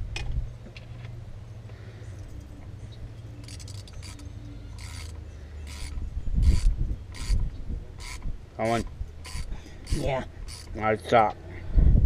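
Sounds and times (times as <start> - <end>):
hand ratchet rasping: 3.4 - 11.0
steady low rumble: 11.3 - 12.0.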